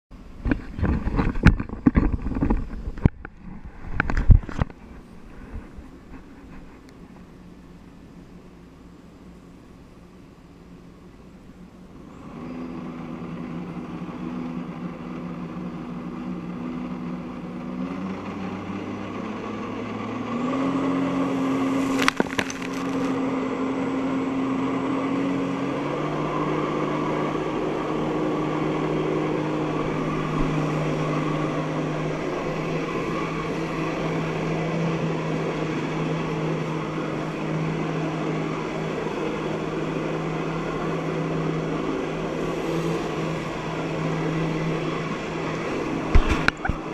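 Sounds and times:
jet ski engine running hard: 9.7 - 46.9
rush of water spray: 20.9 - 23.3, 40.9 - 46.9.

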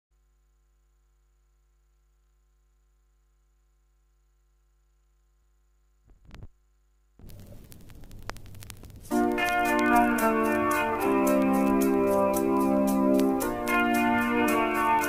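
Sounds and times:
low electrical hum: 0.2 - 9.2
record crackle and surface noise: 1.3 - 15.0
stylus thumps on record: 6.0 - 6.6, 7.2 - 15.0.

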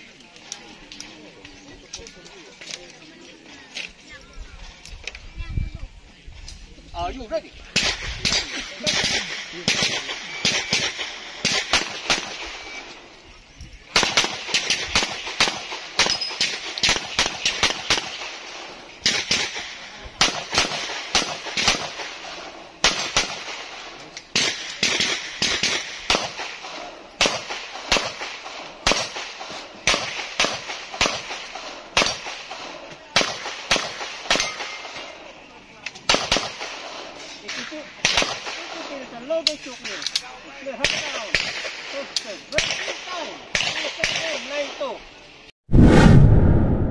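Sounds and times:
pistol shots: 7.8 - 12.8, 14.0 - 18.4, 19.0 - 35.1, 36.1 - 38.8.

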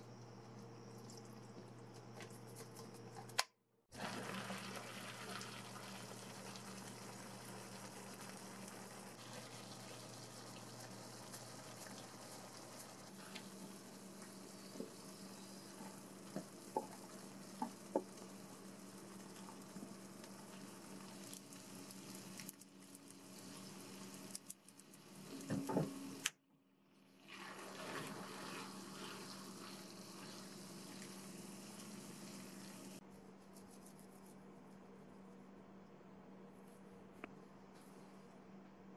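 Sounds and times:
sauce simmering and sizzling: 4.0 - 25.4, 27.1 - 33.0.

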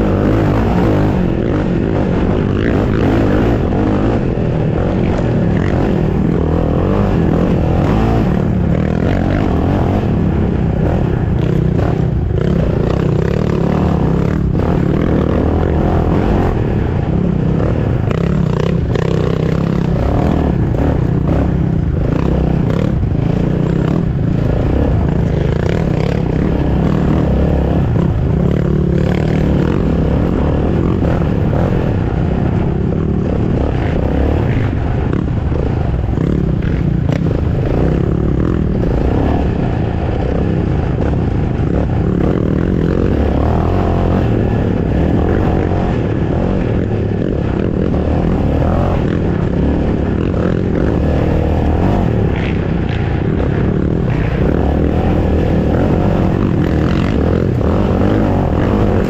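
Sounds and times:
atv engine revving: 0.0 - 59.0
quad bouncing clatter: 0.0 - 59.0.

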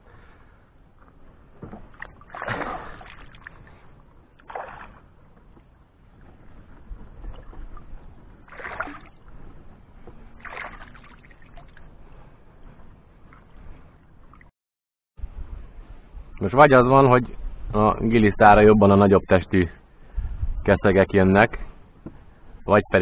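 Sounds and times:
river water splashing: 1.6 - 5.3, 6.1 - 9.4, 10.2 - 11.9.

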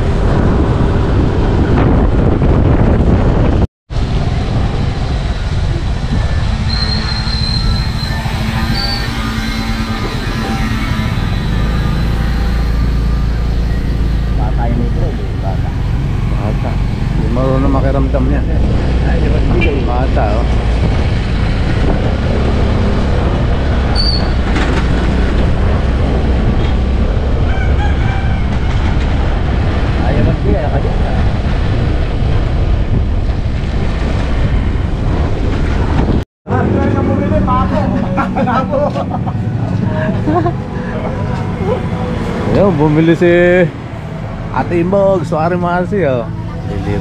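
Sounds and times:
vehicle road noise rumbling: 0.0 - 47.0
rooster crowing: 27.4 - 29.0.

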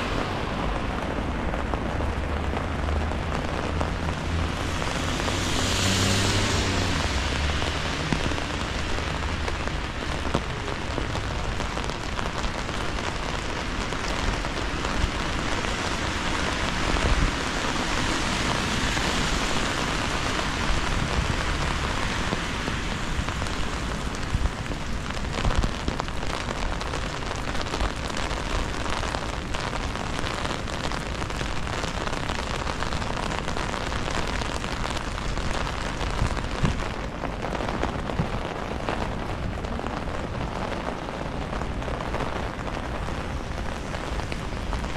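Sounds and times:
passing vehicle engine: 0.0 - 10.0
rain pattering on an umbrella: 0.0 - 44.9.

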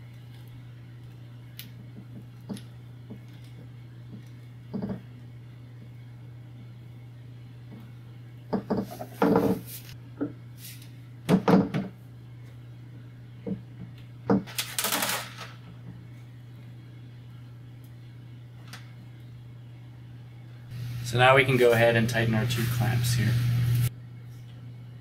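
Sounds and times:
low hum: 15.8 - 25.0.

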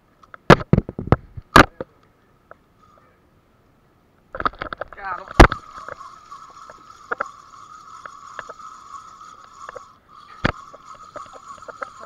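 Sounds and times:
sharp clicks and knocks: 4.3 - 7.4.

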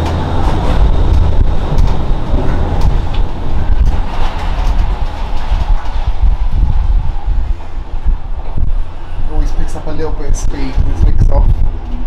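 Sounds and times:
clicks and clatter: 0.0 - 6.9
gondola low rumble: 0.0 - 12.0.

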